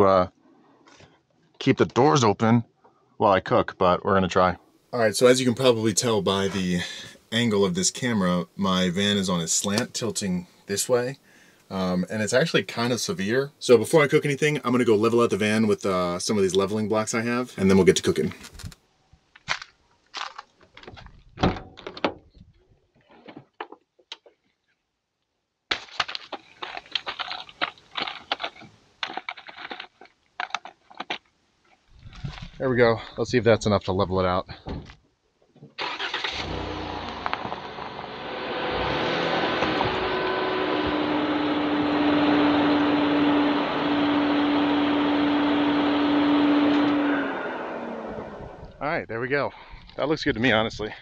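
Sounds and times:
van engine running: 0:36.4 - 0:48.8.

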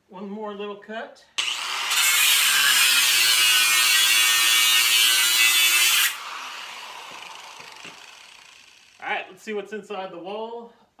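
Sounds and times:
angle grinder cutting metal: 0:01.4 - 0:09.0
grinder disc spinning down: 0:05.2 - 0:09.0.

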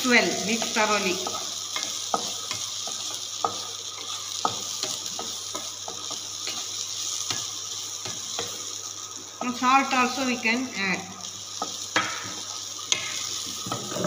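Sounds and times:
onions and tomatoes sizzling: 0:00.0 - 0:14.0
spatula scraping pan: 0:13.0 - 0:14.0.

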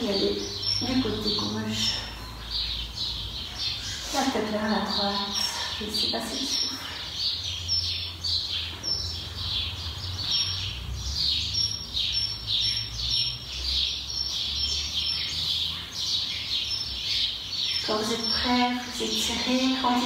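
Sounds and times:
bird chirping: 0:00.0 - 0:20.0.

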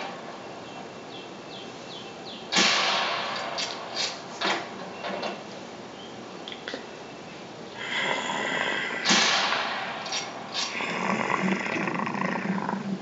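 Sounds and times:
steady noisy background: 0:00.0 - 0:13.0
rifle shot: 0:02.5 - 0:04.3, 0:09.0 - 0:10.7.

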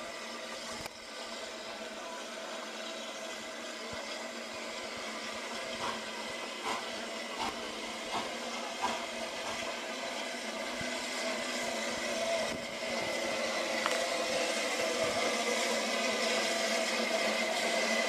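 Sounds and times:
steam locomotive hissing: 0:00.0 - 0:18.0.

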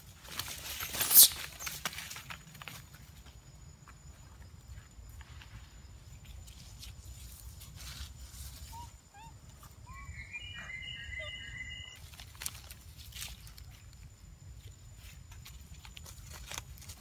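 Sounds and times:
dry leaves rustling and crackling: 0:00.0 - 0:03.0, 0:11.9 - 0:17.0
high whistling call: 0:08.6 - 0:12.0.

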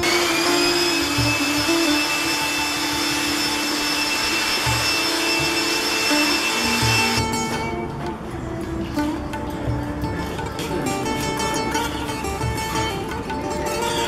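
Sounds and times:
electric air tool running: 0:00.0 - 0:07.6.

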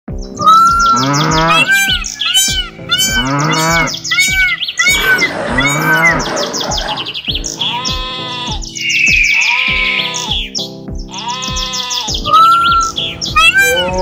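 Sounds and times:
bird chirps: 0:00.1 - 0:14.0
steady thumping beat: 0:00.1 - 0:14.0
cow mooing: 0:00.8 - 0:01.7, 0:02.9 - 0:08.6, 0:09.3 - 0:10.3, 0:11.2 - 0:14.0.

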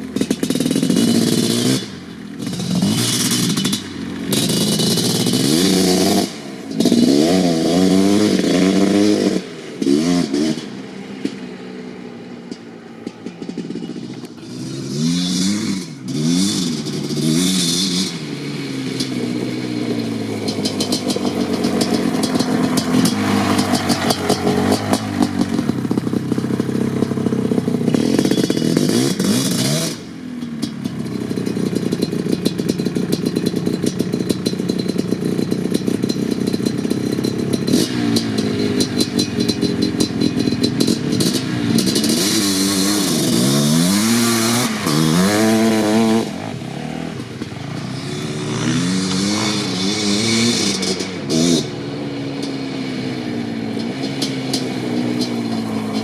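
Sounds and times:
two-stroke engine revving hard: 0:00.0 - 0:56.0
tyres spraying gravel: 0:20.3 - 0:30.1.

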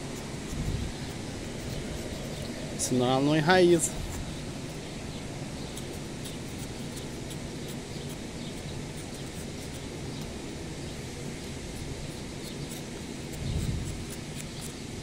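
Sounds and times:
knife scraping wood: 0:00.0 - 0:03.0, 0:05.7 - 0:10.4, 0:11.3 - 0:15.0.

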